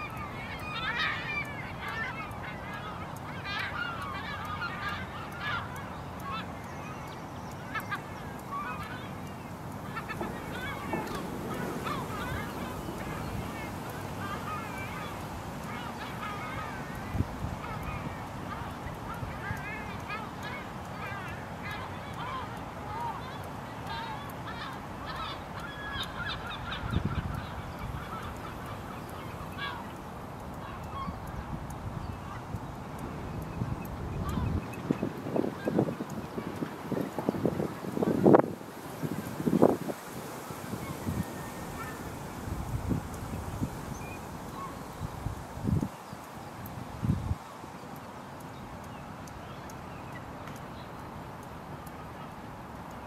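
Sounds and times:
low background hiss: 0.0 - 53.0
waterbirds honking and piping: 0.0 - 53.0
low wind rumble: 8.2 - 20.0, 26.1 - 47.4.

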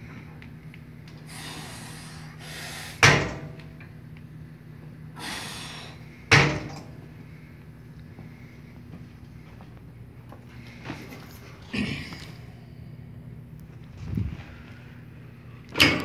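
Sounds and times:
steady low hum: 0.0 - 16.0
hard breathy exhale: 1.3 - 3.1, 5.2 - 6.2.

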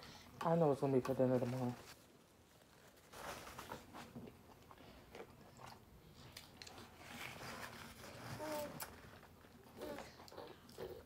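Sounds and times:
person chewing food: 4.2 - 7.0.

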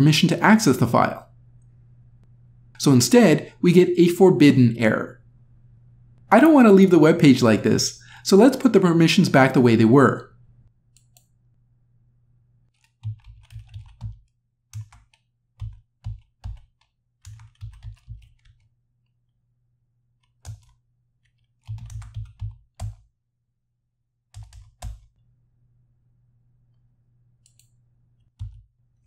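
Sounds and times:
typing on keyboard: 12.7 - 18.7, 20.2 - 23.0, 24.4 - 25.2, 28.3 - 28.6.

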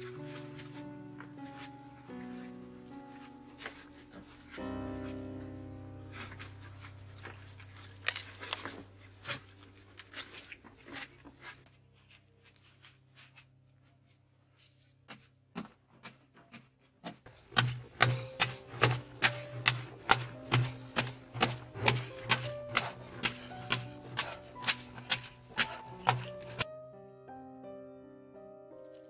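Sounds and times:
digging tool striking earth wall: 15.1 - 26.6.

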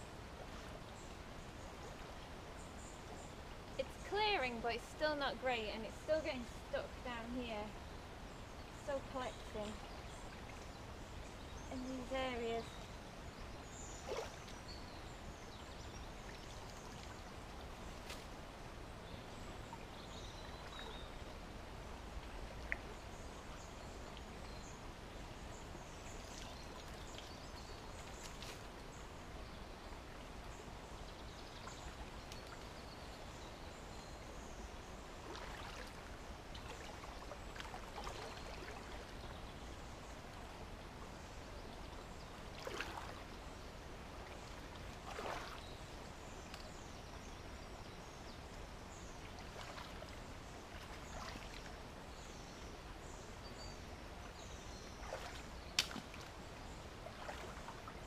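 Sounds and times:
brook water trickling: 0.0 - 58.0
splashes and knocks: 42.6 - 43.2, 44.7 - 45.7, 55.0 - 56.4.

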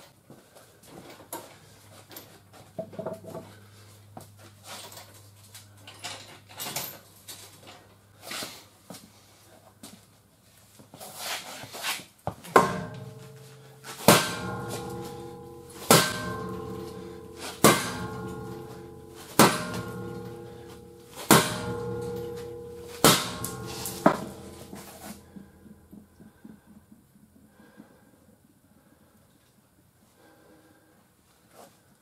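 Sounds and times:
hammer striking steel: 12.5 - 25.8.

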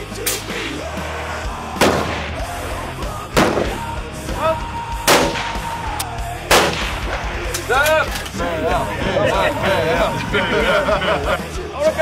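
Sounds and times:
rifle shots: 1.8 - 2.4, 3.4 - 3.9, 5.1 - 5.6, 6.5 - 7.4.

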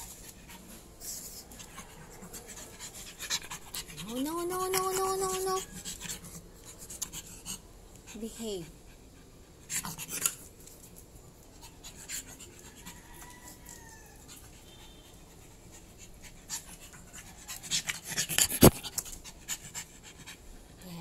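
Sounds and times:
puppy paws scraping on concrete: 9.8 - 14.5.

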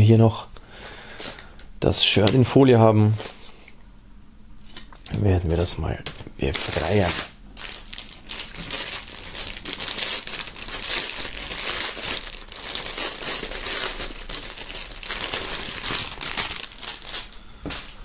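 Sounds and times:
plastic bag crinkling: 0.8 - 1.6, 3.0 - 3.6, 6.1 - 18.0.

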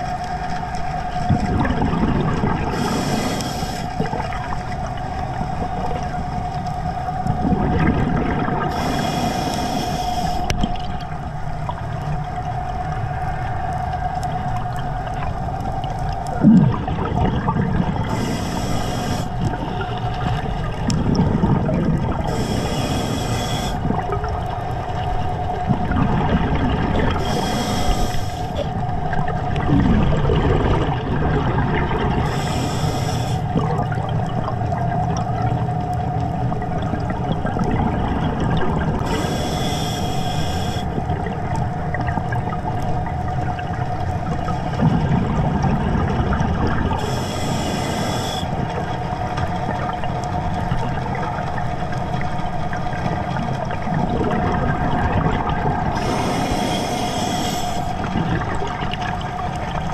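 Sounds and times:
steady mid-pitched whine: 0.0 - 45.2, 46.6 - 59.9
rumbling bubbles: 0.0 - 59.9
regulator air hisses: 2.7 - 4.1, 8.7 - 10.6, 18.1 - 19.4, 22.3 - 23.9, 27.2 - 28.6, 32.2 - 33.5, 39.0 - 40.9, 47.0 - 48.6, 55.9 - 58.1.

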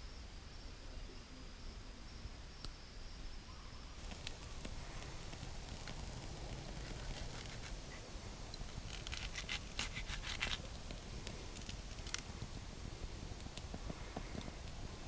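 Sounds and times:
knife crunching through squash: 6.5 - 7.8, 8.8 - 10.7.

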